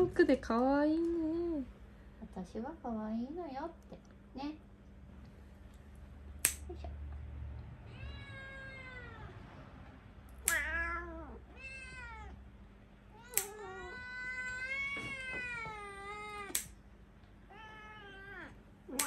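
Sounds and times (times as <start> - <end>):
nail clippers snipping: 6.4 - 6.7, 10.4 - 10.7, 13.3 - 13.6, 16.5 - 16.8
cat meowing: 7.8 - 9.4, 10.4 - 12.4, 13.1 - 16.7, 17.5 - 19.0.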